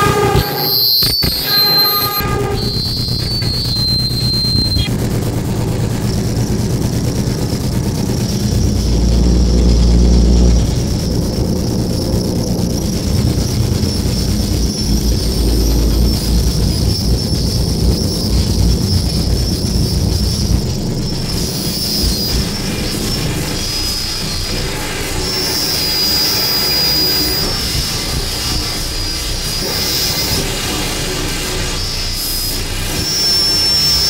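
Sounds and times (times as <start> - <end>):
low rumble: 0.0 - 25.5
thin high whine: 0.0 - 34.0.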